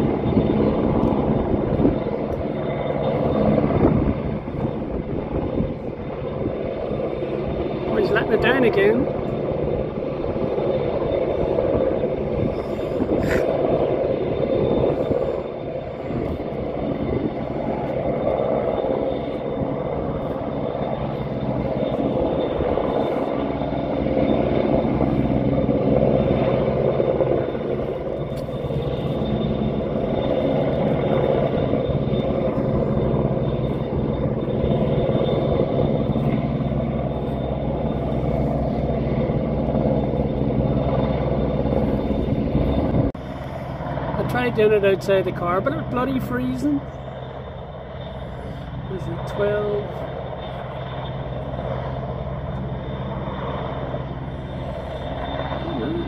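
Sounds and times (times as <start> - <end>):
helicopter rotor drone: 0.0 - 56.0
thin high whine: 10.5 - 56.0.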